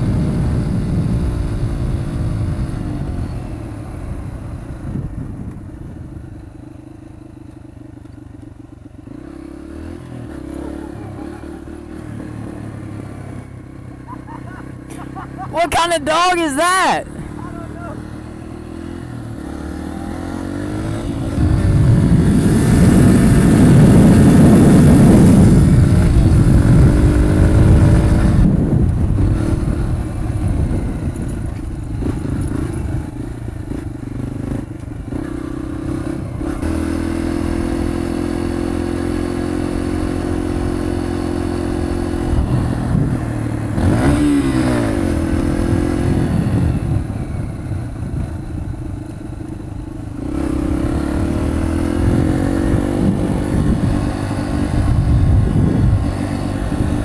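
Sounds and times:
dirt bike engine revving: 9.0s - 48.2s, 50.1s - 57.0s.

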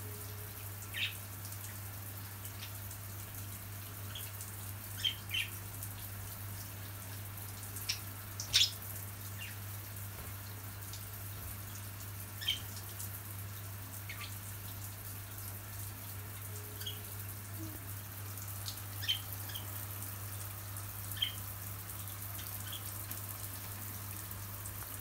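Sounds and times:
shower spraying water: 0.0s - 25.0s
budgerigars chirping: 7.9s - 8.8s.

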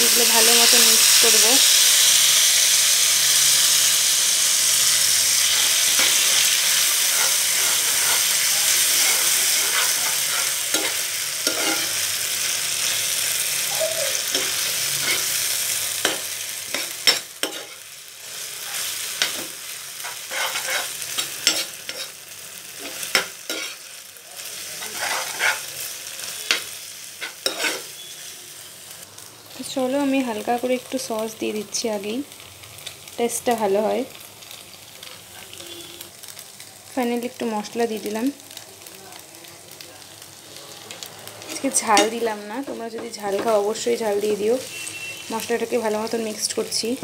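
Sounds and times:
food sizzling in hot oil: 0.0s - 47.0s
metal spatula scraping a pan: 5.2s - 13.2s, 14.2s - 17.9s, 18.7s - 23.9s, 24.8s - 28.1s.

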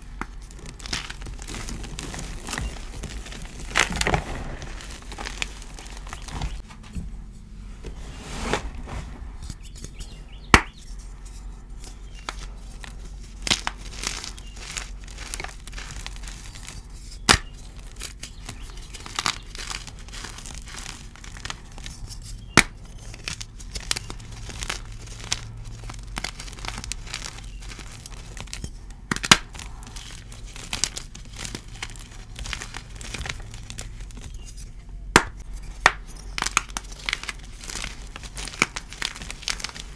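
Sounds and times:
chalk crunching and crackling: 0.0s - 6.6s, 8.2s - 39.9s
chalk pieces snapping: 9.4s - 11.0s, 11.8s - 39.9s.

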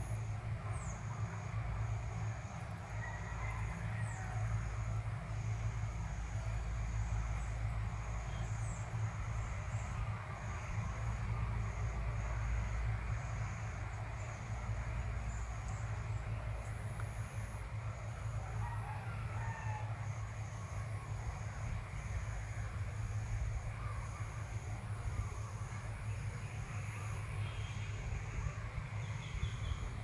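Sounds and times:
low rumble of wind: 0.0s - 30.0s.

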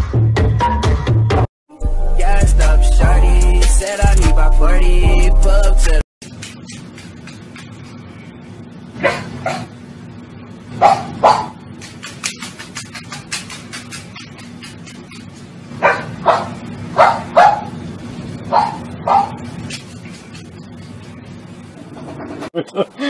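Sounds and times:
dog barking: 9.0s - 9.7s, 10.8s - 11.6s, 15.8s - 17.8s, 18.5s - 19.5s.

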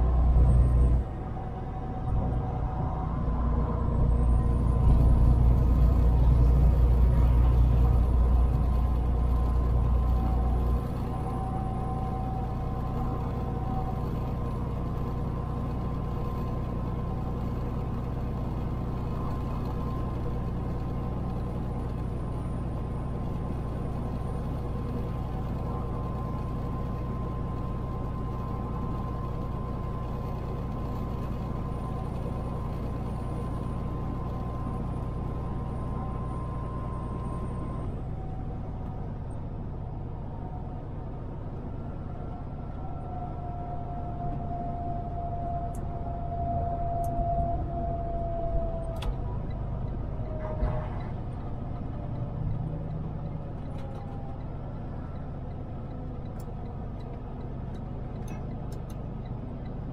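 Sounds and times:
road noise: 0.0s - 59.9s
truck engine running: 2.2s - 41.6s.

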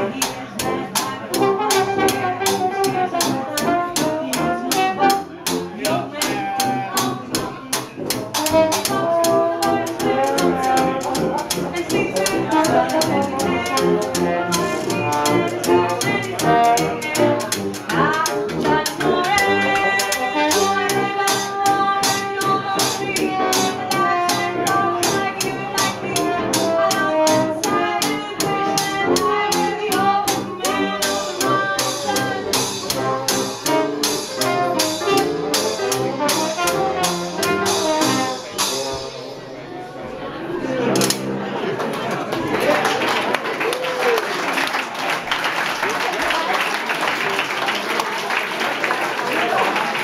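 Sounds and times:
washboard rhythm: 0.0s - 39.0s
trumpet melody: 0.0s - 39.2s
upright piano: 0.0s - 39.7s
tuba bass: 0.0s - 42.5s.

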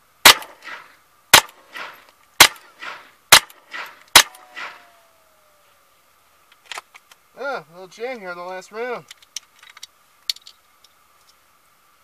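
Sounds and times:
rifle shots with echo: 0.2s - 4.9s.

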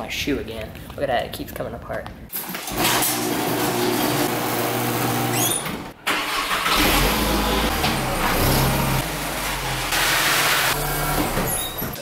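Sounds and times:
car engine starting and idling: 6.0s - 11.6s.

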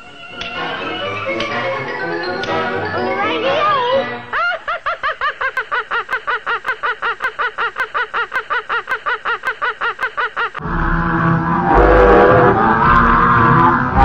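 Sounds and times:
cartoon character laughing: 4.3s - 10.6s.

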